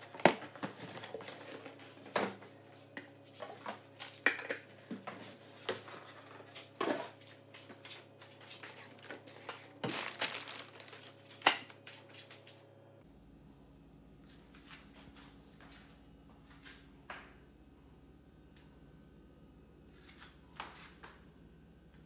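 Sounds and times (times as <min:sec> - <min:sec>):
faint steady hum: 0:00.0 - 0:22.0
packaging crinkle: 0:08.9 - 0:11.7.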